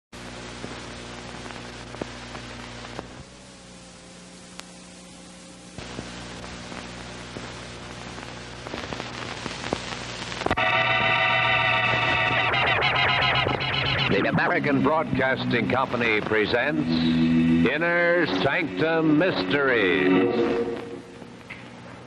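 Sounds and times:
film soundtrack hiss and crackle: 0.2s - 22.0s
low hum: 0.2s - 22.0s
sustained music chord: 10.6s - 21.2s.

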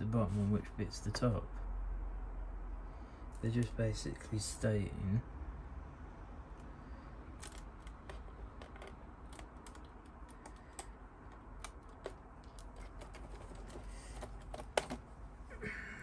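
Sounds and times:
plastic parts clicking: 7.4s - 15.0s.

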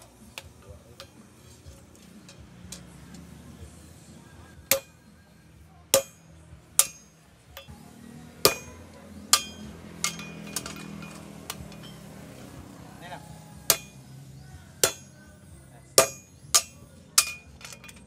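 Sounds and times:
sledgehammer striking metal punch: 4.7s - 5.0s, 5.9s - 7.2s, 8.4s - 10.6s, 13.7s - 14.0s, 14.8s - 15.2s, 16.0s - 17.5s.

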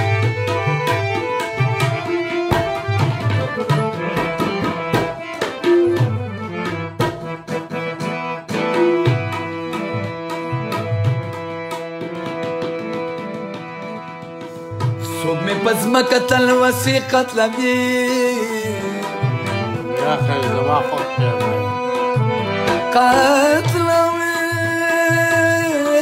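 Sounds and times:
tabla strokes: 0.0s - 18.3s
harmonium melody: 0.0s - 26.0s.

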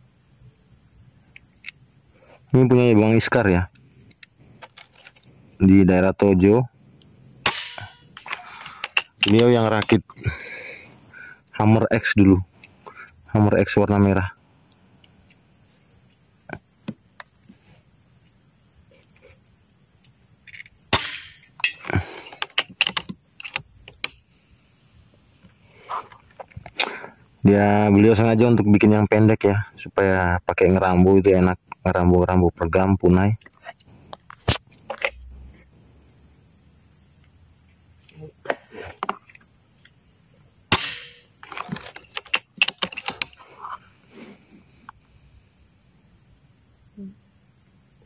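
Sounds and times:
air rifle shot crack: 7.4s - 8.4s, 20.9s - 21.4s, 40.7s - 41.3s
sharp clicks and knocks: 20.5s - 24.2s, 41.4s - 43.4s.

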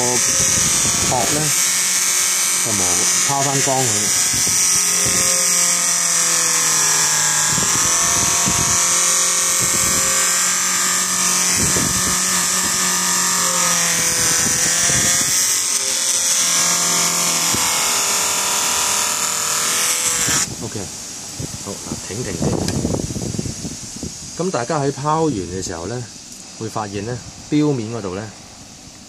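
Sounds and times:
polishing machine whining: 0.0s - 20.8s.

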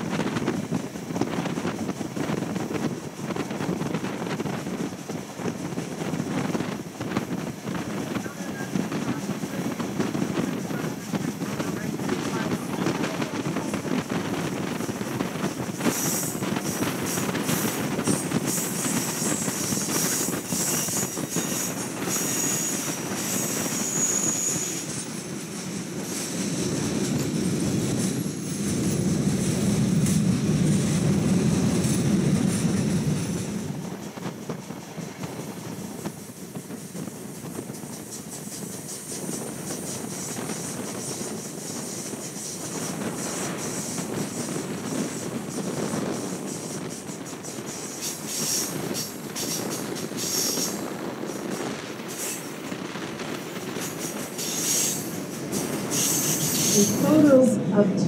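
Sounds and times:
train wheels on rails: 0.0s - 58.0s
high wheel squeal: 15.8s - 25.2s, 53.8s - 57.2s.

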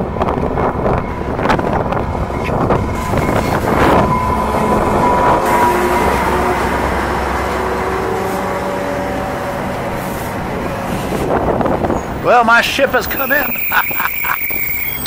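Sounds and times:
high squealing train wheels: 0.0s - 15.0s.

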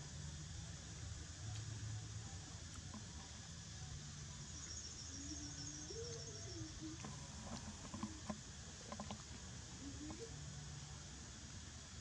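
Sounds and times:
faint wavering tone: 4.4s - 7.4s.

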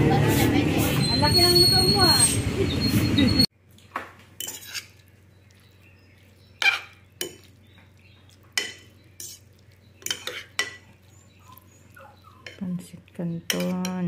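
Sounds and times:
fork clinking against bowl: 4.4s - 5.0s, 8.5s - 10.9s, 13.5s - 14.0s.

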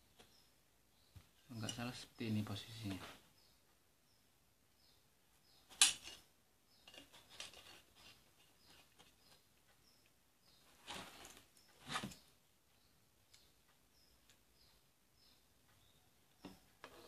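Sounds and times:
small clicks and rustles: 5.7s - 12.4s.

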